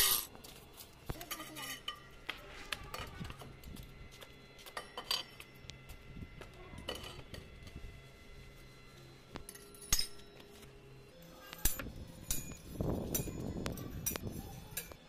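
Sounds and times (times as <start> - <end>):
metal tubes clinking and knocking: 1.2 - 2.2, 4.6 - 5.6, 6.8 - 7.5, 9.3 - 10.4, 11.3 - 15.0.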